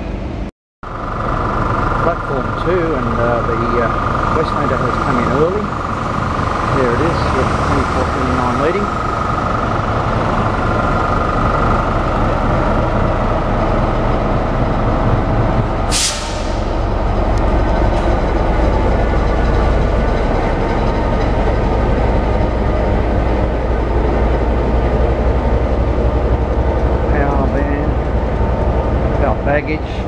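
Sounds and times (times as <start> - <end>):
diesel locomotive engine rumble: 0.0 - 30.0
air brake hiss: 15.9 - 16.7.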